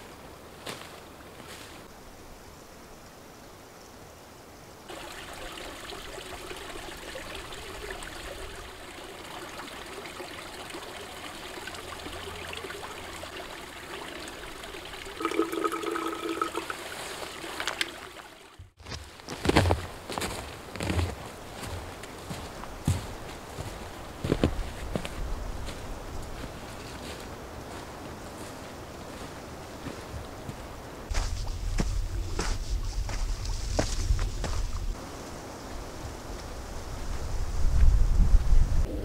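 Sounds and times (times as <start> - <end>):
forest stream trickling: 0.0 - 37.5
footsteps on snow: 0.6 - 1.9, 18.8 - 35.0.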